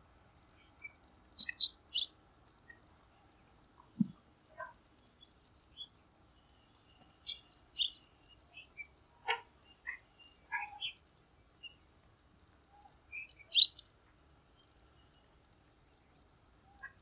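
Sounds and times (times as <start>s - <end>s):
bird chirping: 0.5s - 11.9s, 12.7s - 13.9s.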